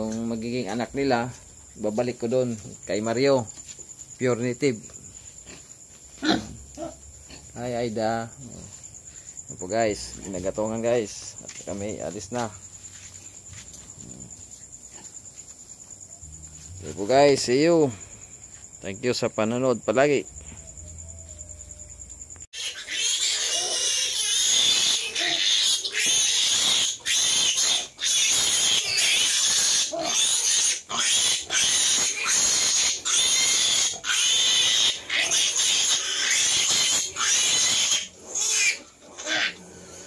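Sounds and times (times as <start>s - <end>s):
pigs squealing: 5.5s - 7.4s, 22.6s - 40.0s.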